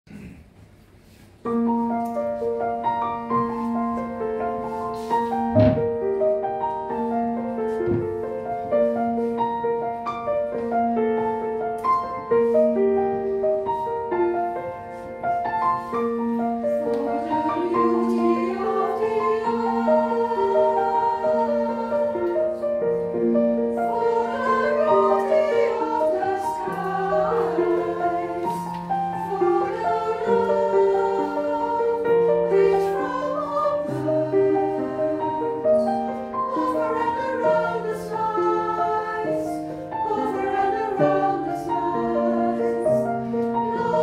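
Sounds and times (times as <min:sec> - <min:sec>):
grand piano playing: 0:01.4 - 0:44.0
choir singing: 0:16.1 - 0:44.0.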